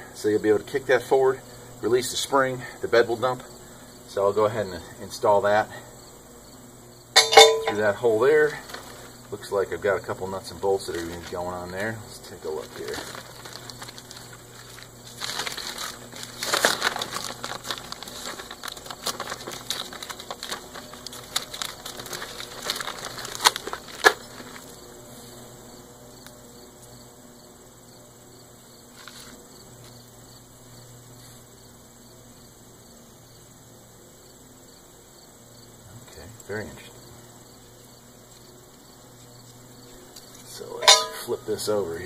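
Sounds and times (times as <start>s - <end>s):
insects chirping: 0.0s - 42.0s
paper rustling and crinkling: 7.8s - 9.5s, 10.6s - 24.8s, 28.9s - 29.9s
paper snaps: 12.8s - 24.6s.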